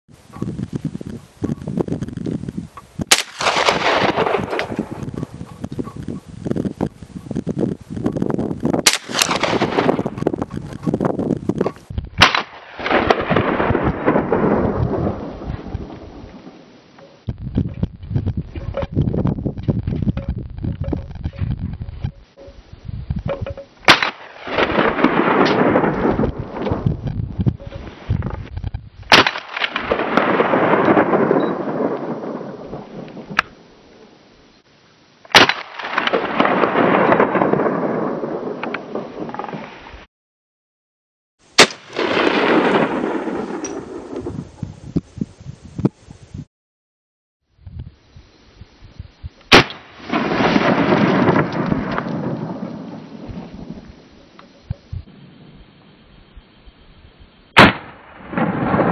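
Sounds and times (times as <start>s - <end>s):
gunshots with rolling echo: 3.1s - 6.0s, 8.8s - 10.6s, 12.2s - 16.6s, 23.9s - 27.0s, 29.1s - 33.5s, 35.3s - 39.6s, 41.6s - 44.4s, 49.5s - 53.6s, 57.6s - 58.9s.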